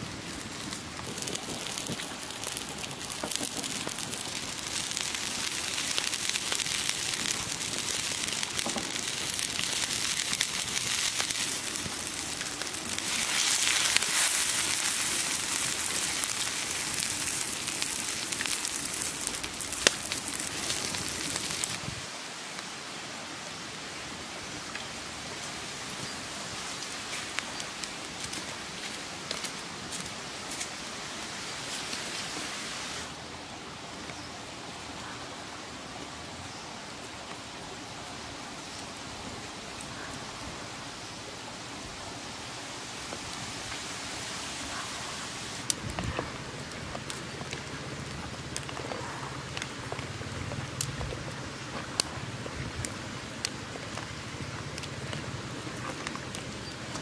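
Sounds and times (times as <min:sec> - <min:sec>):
water boiling hard: 0:00.0 - 0:22.0
fire crackling: 0:00.0 - 0:57.0.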